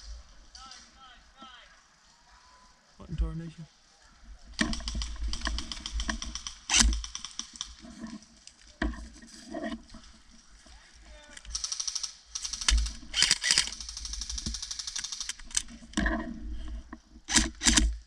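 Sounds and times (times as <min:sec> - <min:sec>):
airsoft rifle bursts: 0:11.4 - 0:15.6.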